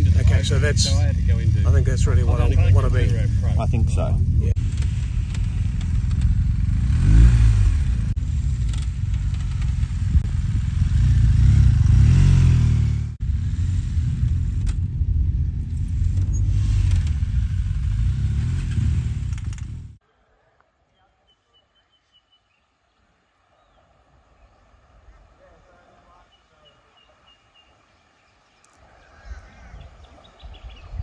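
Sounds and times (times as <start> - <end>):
motorcycle engines revving: 0.0 - 20.0.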